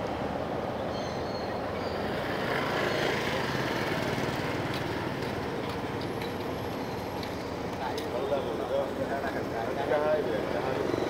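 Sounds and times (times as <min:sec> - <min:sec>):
outdoor background rush: 0:00.0 - 0:11.0.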